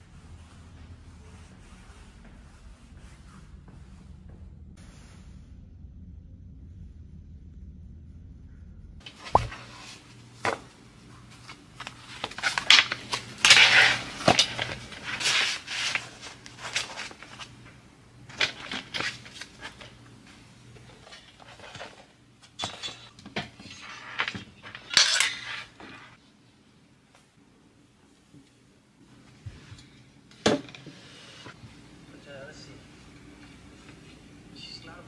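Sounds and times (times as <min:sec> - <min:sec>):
laptop and metal stand handled: 0:11.3 - 0:17.5, 0:20.9 - 0:26.2.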